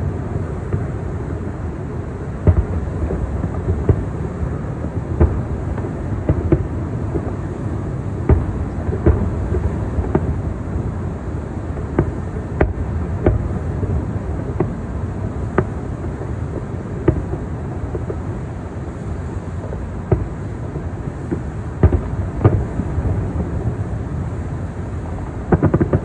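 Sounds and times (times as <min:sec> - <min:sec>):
distant fireworks booming: 0:00.0 - 0:26.0
steady low rumble: 0:00.0 - 0:26.0.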